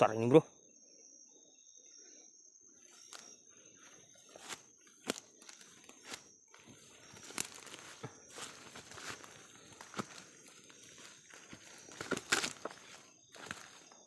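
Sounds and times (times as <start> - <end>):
cricket drone: 0.0 - 14.0
footsteps through undergrowth: 2.9 - 14.0
stems snapping underfoot: 4.4 - 6.2, 7.2 - 10.2, 11.4 - 13.8.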